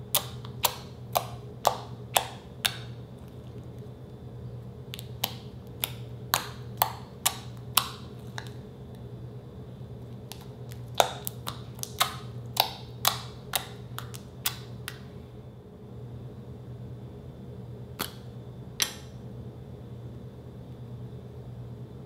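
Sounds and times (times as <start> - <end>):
fingers popping sticky slime: 0.0 - 3.0, 4.9 - 8.6, 10.2 - 15.0.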